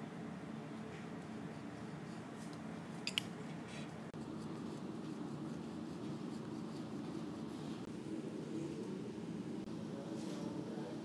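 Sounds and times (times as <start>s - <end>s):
steady low hum: 0.0s - 11.0s
pencil scratching on cardboard: 4.2s - 7.8s.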